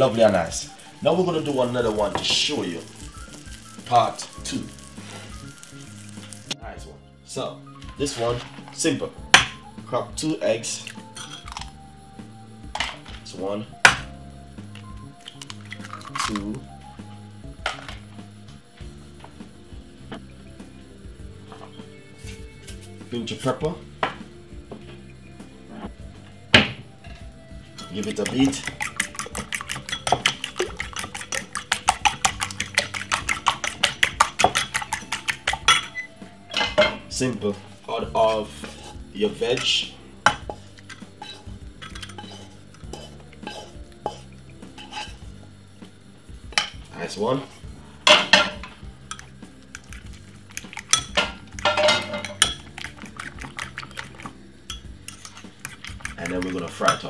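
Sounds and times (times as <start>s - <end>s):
fork beating eggs in a bowl: 1.0s - 6.5s, 27.8s - 36.1s, 40.3s - 45.2s, 49.1s - 57.0s
fork tines clinking on bowl: 27.8s - 36.9s, 40.8s - 45.2s, 49.1s - 57.0s.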